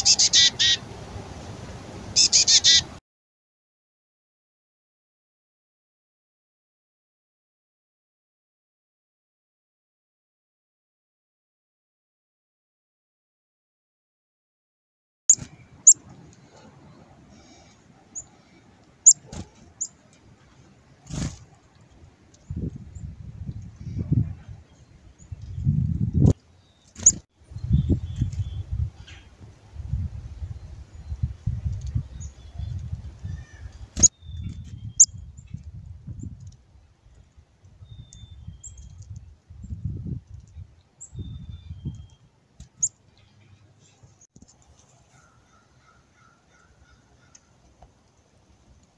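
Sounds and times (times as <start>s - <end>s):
low rumble on microphone: 27.4s - 42.1s.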